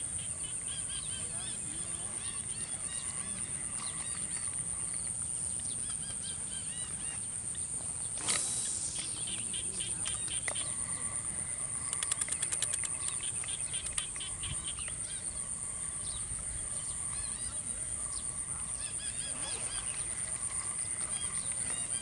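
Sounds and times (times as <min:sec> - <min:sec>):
high insect trill: 0:00.0 - 0:22.0
brief hissing burst: 0:08.2 - 0:09.6
fast rattle of clicks: 0:11.8 - 0:15.0.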